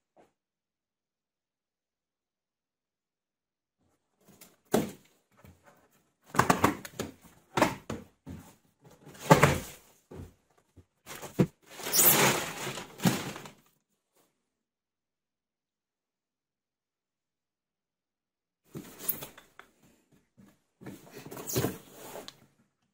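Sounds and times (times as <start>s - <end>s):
plastic film rustling: 11.7s - 13.7s.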